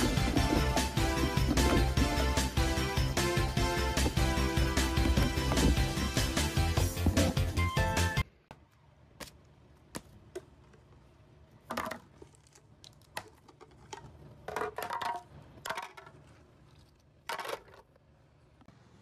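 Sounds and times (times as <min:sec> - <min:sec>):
plastic toy pieces clattering: 0:11.7 - 0:16.4.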